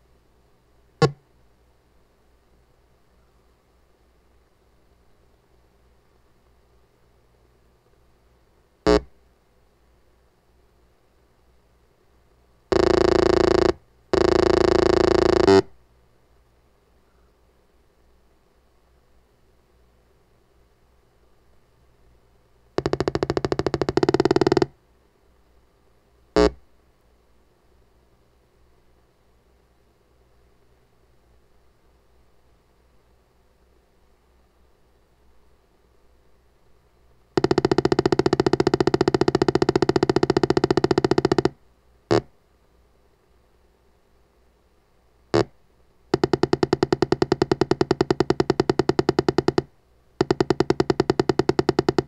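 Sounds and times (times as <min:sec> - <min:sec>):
pulsing electronic buzz: 0:08.9 - 0:09.1, 0:12.7 - 0:15.7, 0:22.8 - 0:24.7, 0:37.4 - 0:41.5.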